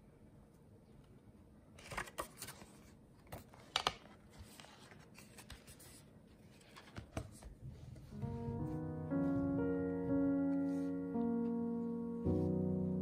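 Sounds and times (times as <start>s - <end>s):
notebook pages rustling: 1.8s - 8.4s.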